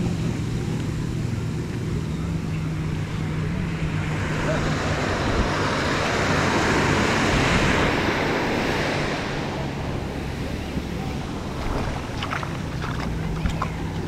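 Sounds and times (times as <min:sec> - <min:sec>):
wind buffeting microphone: 0:07.3 - 0:14.0.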